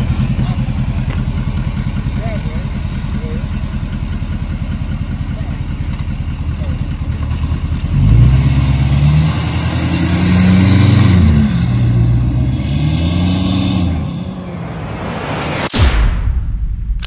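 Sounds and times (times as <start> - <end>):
diesel truck engine accelerating: 0.0 - 15.8
high whistle rising and falling: 11.4 - 15.9.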